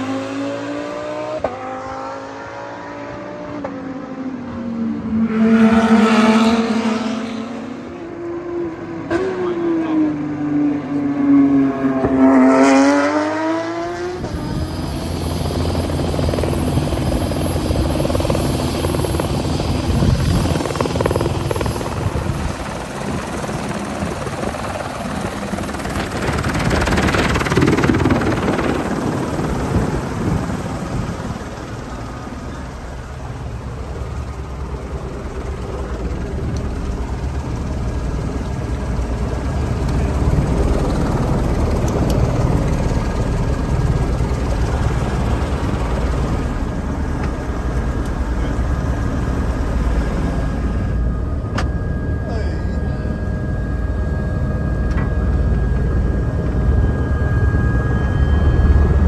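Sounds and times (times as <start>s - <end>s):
race car passing at speed: 0.0s - 15.0s
helicopter running: 0.0s - 59.0s.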